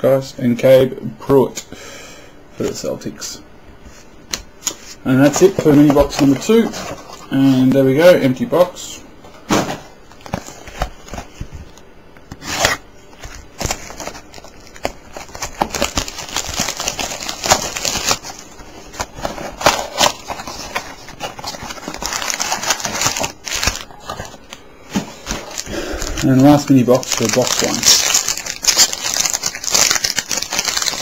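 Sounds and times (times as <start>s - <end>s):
cellophane crinkling and tearing: 12.3s - 31.0s
cardboard box and foil packs handled: 12.4s - 31.0s.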